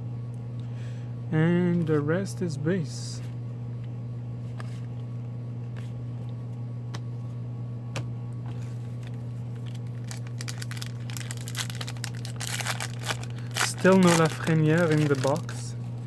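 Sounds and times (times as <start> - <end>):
steady low hum: 0.0 - 16.0
trading cards clicking: 11.8 - 15.5.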